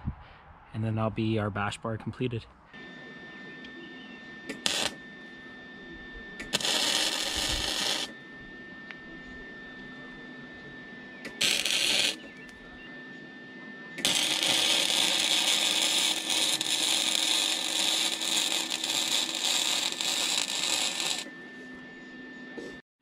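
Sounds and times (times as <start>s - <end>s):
arc welding crackling: 4.5s - 5.0s, 6.4s - 8.2s, 11.2s - 12.6s, 14.0s - 21.3s.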